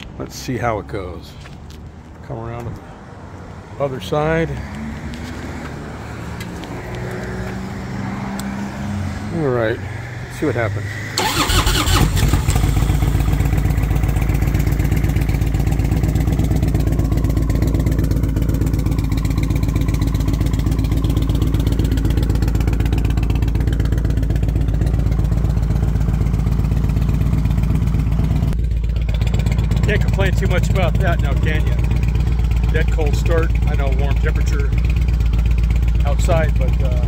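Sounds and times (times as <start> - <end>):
motorcycle engine idling: 11.2 - 37.0.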